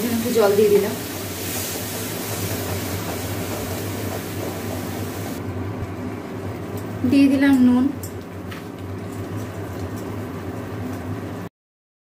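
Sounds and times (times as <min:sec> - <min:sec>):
spice paste sizzling in oil: 0:00.0 - 0:05.4.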